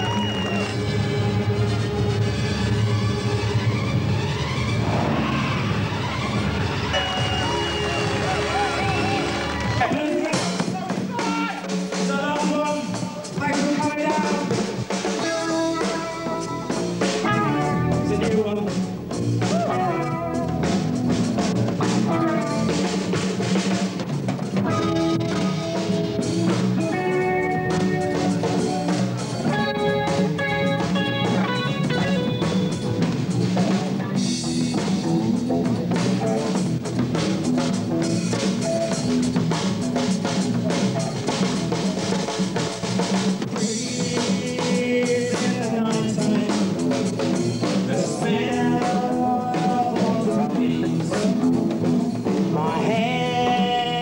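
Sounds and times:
electric guitar: 0.0s - 11.1s, 11.7s - 54.0s
rock band playing: 0.0s - 54.0s
drum kit beat: 4.3s - 54.0s.

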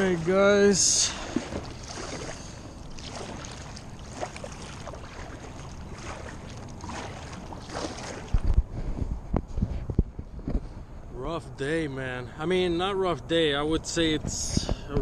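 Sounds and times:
water swishing: 0.0s - 8.9s
kayak paddle strokes in water: 0.0s - 9.8s.

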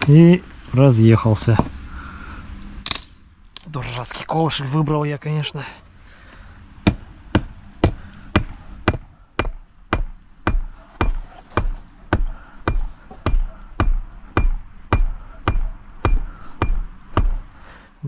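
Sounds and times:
hatchet hammering wooden stake: 6.8s - 17.5s.

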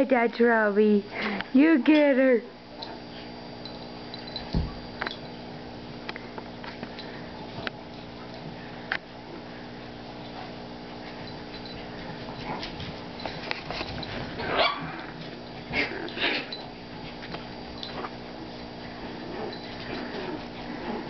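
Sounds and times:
dogs yelping: 14.4s - 15.1s.

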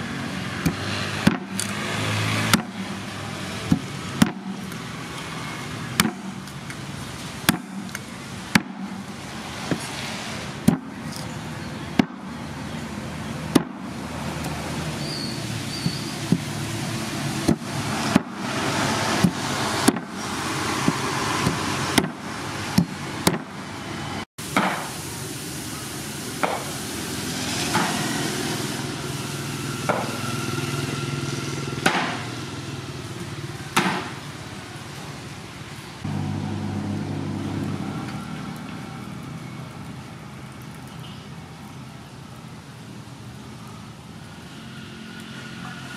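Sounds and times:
steady background noise: 0.0s - 45.9s
cleaver chopping on wooden board: 29.9s - 30.2s, 31.8s - 32.2s, 33.8s - 34.1s.

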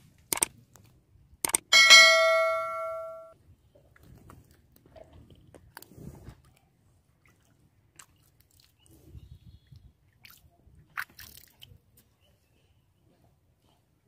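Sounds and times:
notification bell ding: 1.7s - 3.3s
wet mud squelching: 10.2s - 11.8s.

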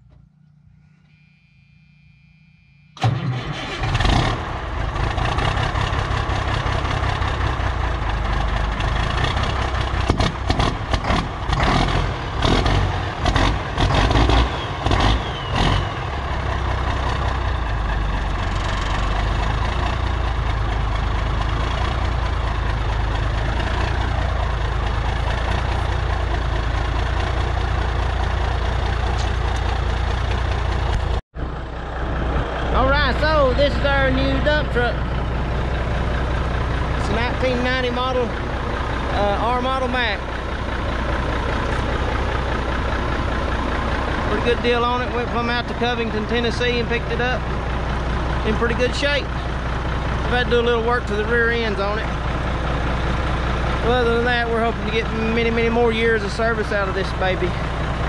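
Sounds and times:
diesel truck engine starting and revving: 3.0s - 58.0s.

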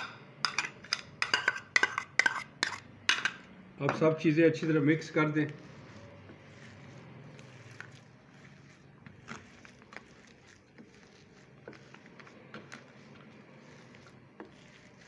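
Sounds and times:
hand squishing food mixture: 4.5s - 15.0s.

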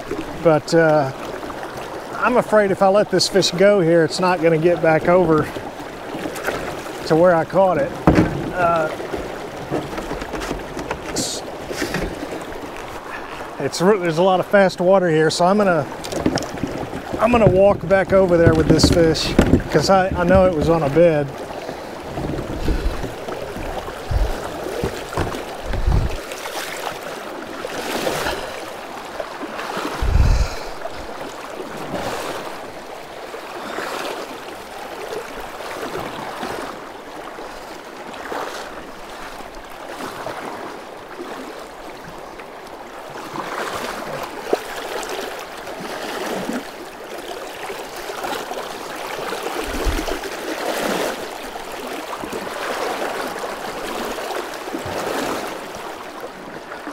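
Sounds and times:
paddle stroke splashes: 0.0s - 56.9s
stream water rushing: 0.0s - 56.9s
short low thumps: 22.2s - 26.2s, 30.0s - 31.2s.

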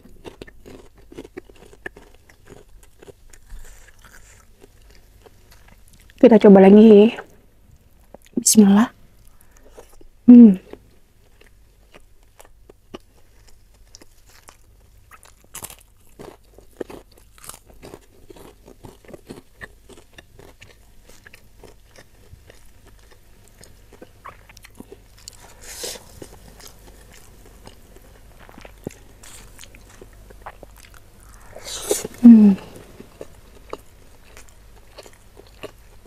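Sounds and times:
crunchy chewing: 0.0s - 6.2s, 9.2s - 36.0s
person humming mm: 10.3s - 10.7s, 31.2s - 33.0s.

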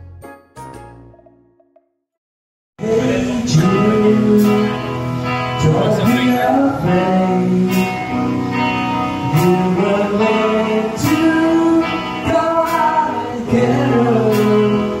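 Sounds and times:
man singing: 2.8s - 5.0s, 5.6s - 8.2s, 9.2s - 15.0s
drums: 2.8s - 15.0s
electric guitars: 2.8s - 15.0s.

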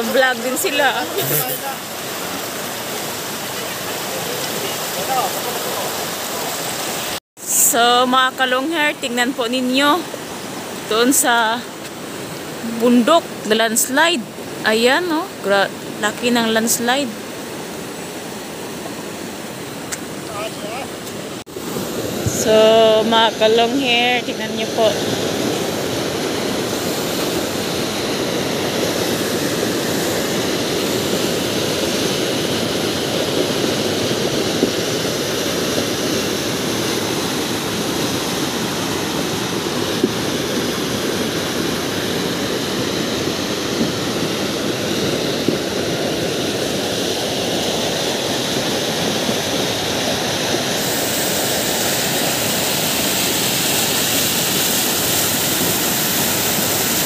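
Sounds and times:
floodwater rushing: 0.0s - 7.2s, 8.3s - 57.0s
sharp hiss: 50.7s - 57.0s.

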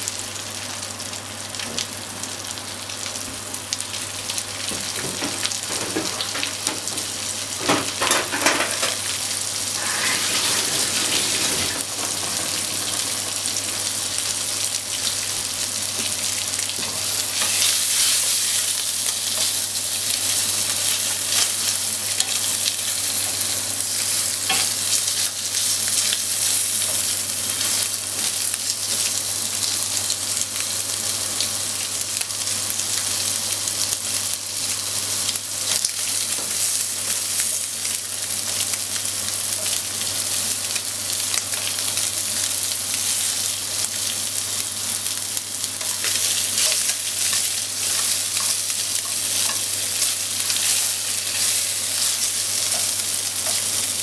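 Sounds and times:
fish sizzling in hot oil: 0.0s - 54.0s
utensils clicking on pan: 4.7s - 9.2s, 9.8s - 14.0s, 24.1s - 29.2s, 45.8s - 54.0s.

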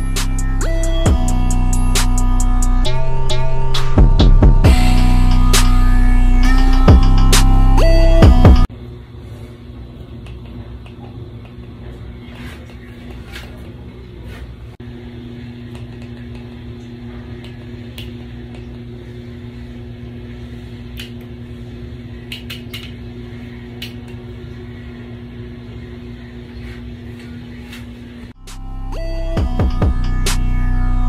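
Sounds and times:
electronic music: 0.0s - 8.7s, 28.4s - 31.0s
fan humming: 0.0s - 31.0s.

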